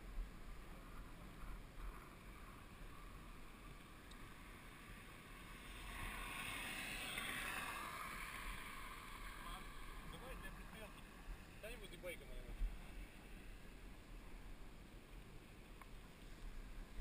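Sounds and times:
muffled wind: 0:00.0 - 0:17.0
rolling road noise: 0:00.0 - 0:17.0.

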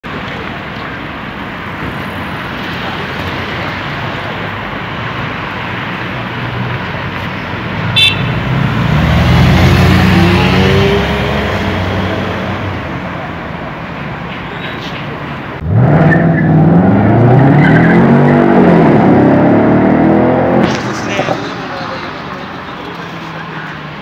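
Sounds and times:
road traffic: 0:00.0 - 0:24.0
motorcycles passing close: 0:06.4 - 0:13.0
short high horn toot: 0:08.0 - 0:08.4.

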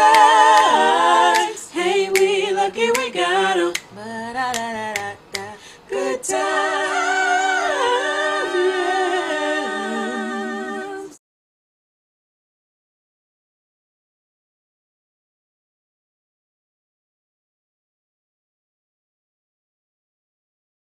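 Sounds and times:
a cappella singing: 0:00.0 - 0:11.2.

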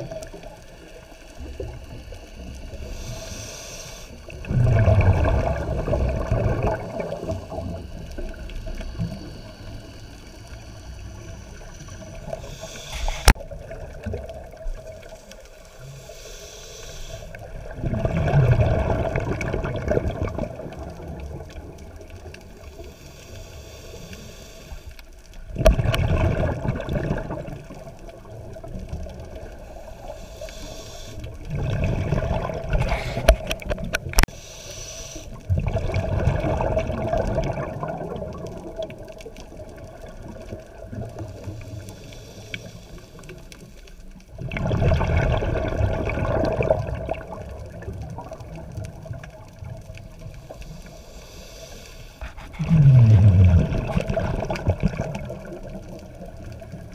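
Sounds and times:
underwater noise: 0:00.0 - 0:56.9
diver's bubbles rushing: 0:04.3 - 0:07.8, 0:17.6 - 0:22.0, 0:25.5 - 0:29.4, 0:31.4 - 0:34.3, 0:35.5 - 0:41.1, 0:44.3 - 0:50.2, 0:52.2 - 0:56.9.

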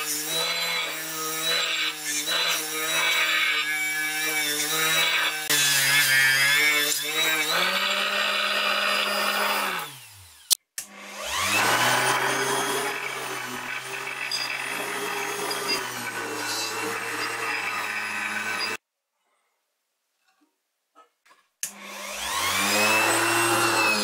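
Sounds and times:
electric power tool motor running: 0:00.1 - 0:18.8, 0:21.7 - 0:24.0.

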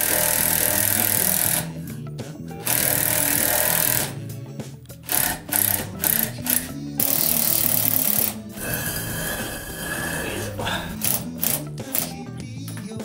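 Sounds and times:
background music: 0:00.0 - 0:13.0
car jack rattling: 0:05.0 - 0:12.2.

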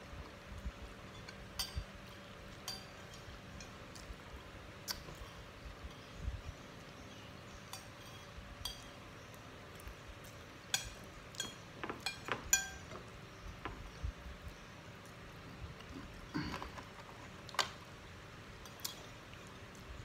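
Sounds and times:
cutlery clinking on plates: 0:10.7 - 0:13.1.

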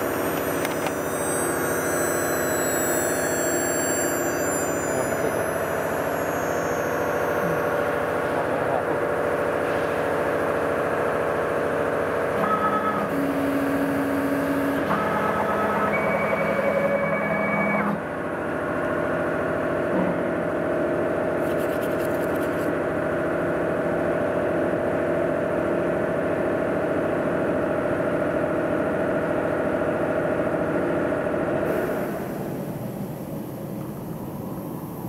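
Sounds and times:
cnc router whining tones: 0:00.0 - 0:18.9
machine hum: 0:00.0 - 0:24.5.

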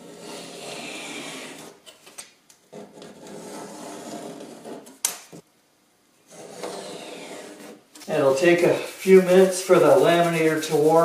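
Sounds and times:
knife cutting paper along ruler: 0:00.0 - 0:01.8.

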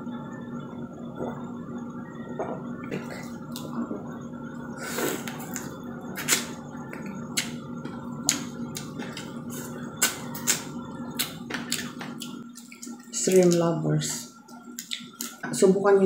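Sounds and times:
steady low hum: 0:00.0 - 0:16.0
chewing and lip smacks: 0:14.5 - 0:15.4.

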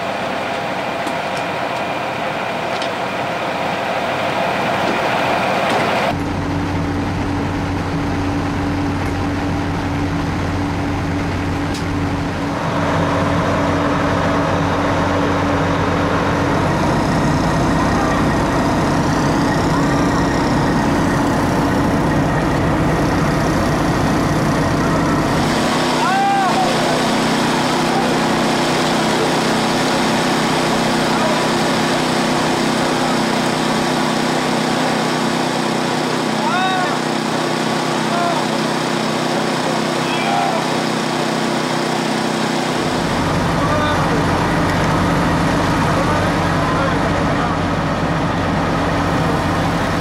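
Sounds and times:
constant low hum: 0:00.0 - 0:36.9
idling vehicle engines: 0:00.0 - 0:50.0.

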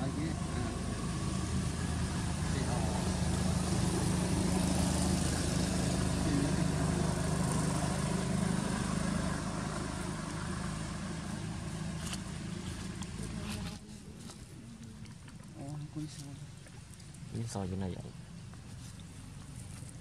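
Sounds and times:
engine idling: 0:00.0 - 0:13.9.

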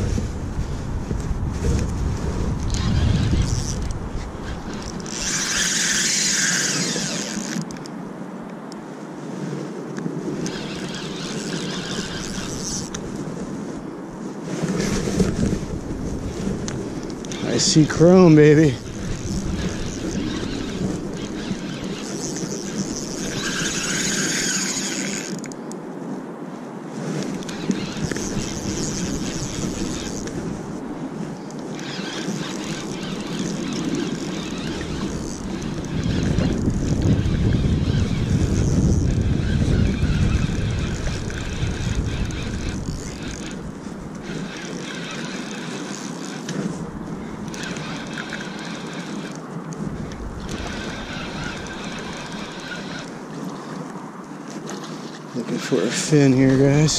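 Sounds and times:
wind rumbling on microphone: 0:00.0 - 0:56.9
spinning reel buzzing: 0:02.7 - 0:07.8, 0:10.4 - 0:13.0, 0:17.2 - 0:25.6, 0:27.4 - 0:30.6, 0:31.5 - 0:46.7, 0:47.4 - 0:49.4, 0:50.4 - 0:53.2.

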